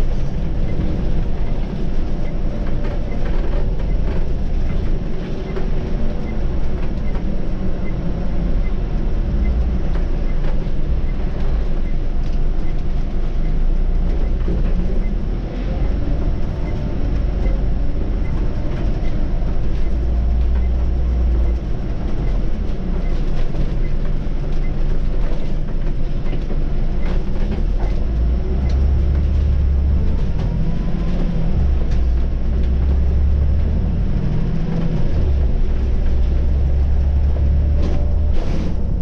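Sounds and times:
bus engine and road rumble: 0.0s - 39.0s.

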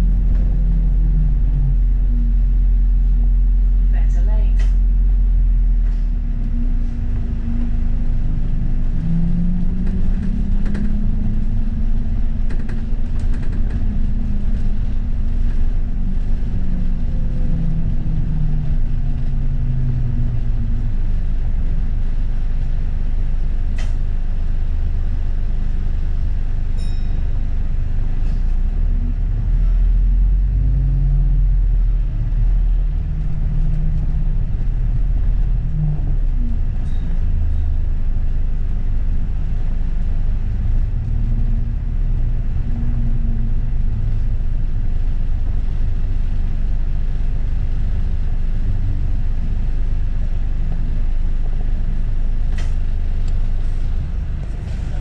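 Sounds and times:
bus engine hum: 0.0s - 55.0s
rattles and knocks: 9.7s - 16.5s.

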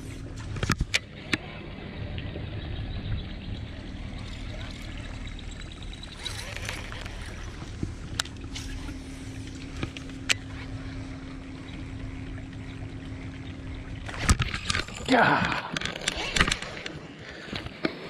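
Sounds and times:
electric trolling motor humming: 0.0s - 18.0s
fishing reel clicks: 6.1s - 7.6s.

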